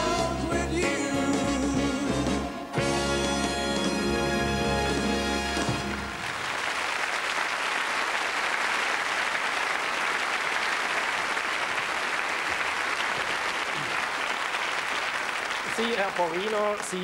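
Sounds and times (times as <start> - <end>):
music: 0.0 - 6.4
audience applauding: 4.9 - 17.0.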